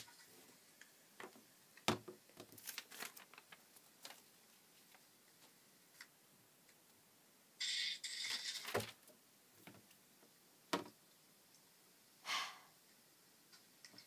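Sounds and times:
paper rustling: 2.4s - 5.6s.

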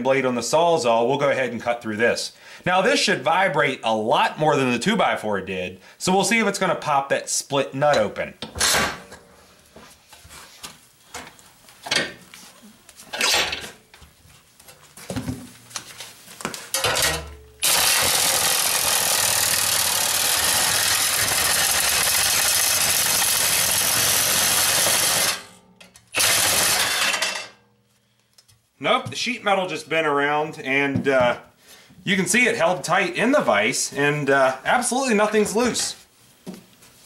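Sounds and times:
reciprocating saw cutting sheet metal: 17.1s - 27.4s.

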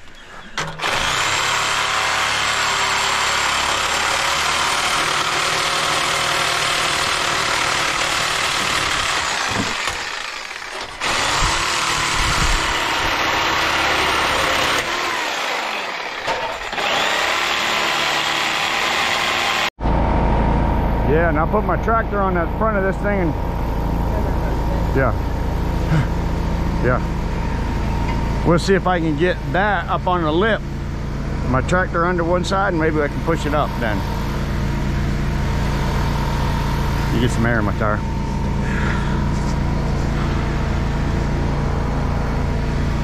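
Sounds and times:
engine running: 0.0s - 43.0s.

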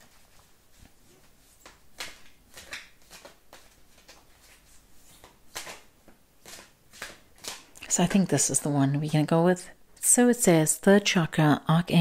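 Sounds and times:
cards being shuffled: 0.0s - 8.6s.

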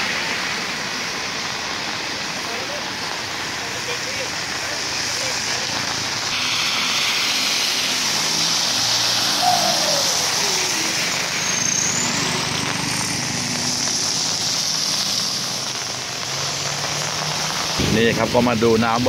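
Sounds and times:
passing vehicle: 0.0s - 19.0s
rain and tyres on wet road: 0.0s - 19.0s
low hum of vehicle engines: 4.7s - 19.0s.

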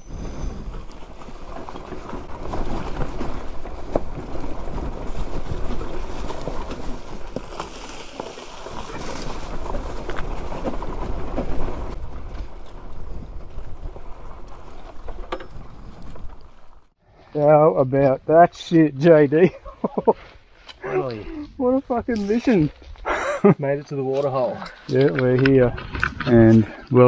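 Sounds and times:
tyres knocking and crunching over rocks: 0.6s - 16.9s.

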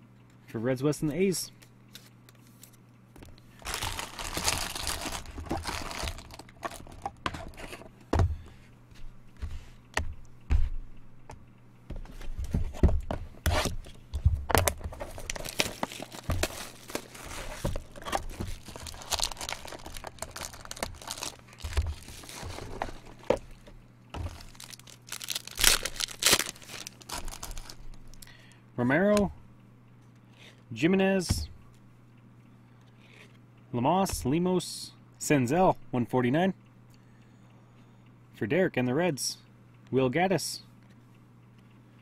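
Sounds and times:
cards rustling: 1.9s - 7.9s, 14.6s - 28.2s
wrappers crinkling: 3.4s - 7.6s, 14.7s - 28.3s
foil packs tearing: 3.6s - 7.6s, 14.7s - 23.4s, 24.2s - 28.2s.

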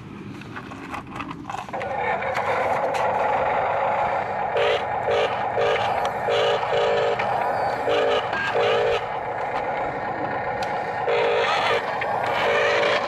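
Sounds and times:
clicks and scraping: 0.2s - 9.9s
electric motors whining: 1.7s - 13.0s.

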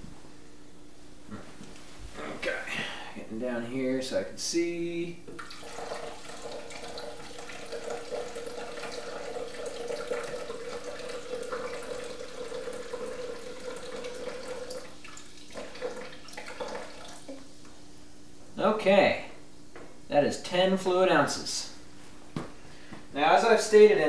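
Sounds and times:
fizzy water pouring: 5.4s - 17.5s
water dribbling: 5.4s - 17.5s.

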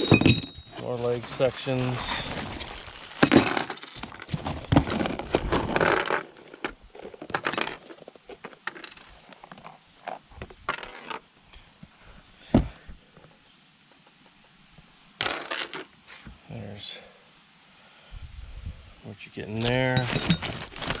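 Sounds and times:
metal parts clinking: 0.0s - 0.8s, 19.6s - 21.0s
plastic bags rustling: 0.0s - 6.4s, 20.0s - 21.0s.

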